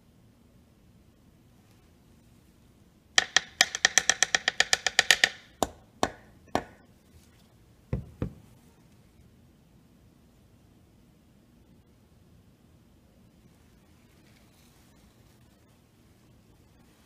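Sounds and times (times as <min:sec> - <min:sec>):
plastic bottle being tapped: 0:03.2 - 0:06.8.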